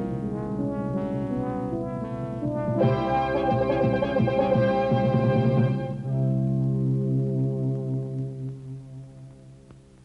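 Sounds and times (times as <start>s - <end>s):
brass theme music: 0.2s - 8.5s.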